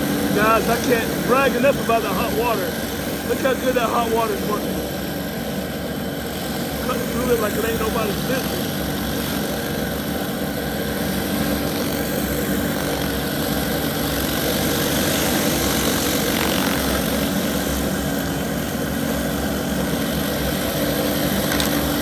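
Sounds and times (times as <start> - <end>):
diesel engine drone: 0.0 - 22.0.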